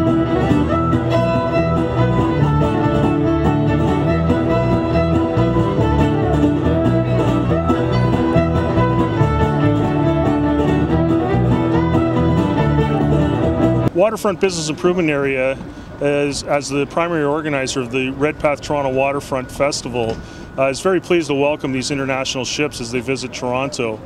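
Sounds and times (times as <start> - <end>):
fiddle: 0.0 - 13.9
bluegrass string band playing: 0.0 - 14.0
guitar: 0.0 - 14.0.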